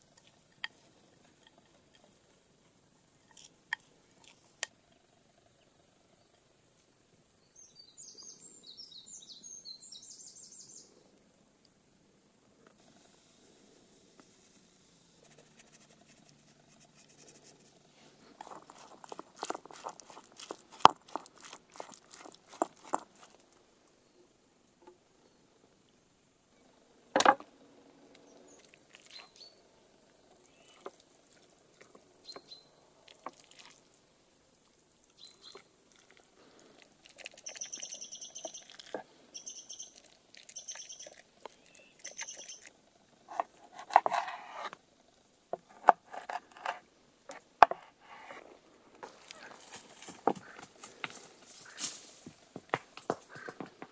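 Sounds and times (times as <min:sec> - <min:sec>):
bird calling: 0:37.3 - 0:42.7.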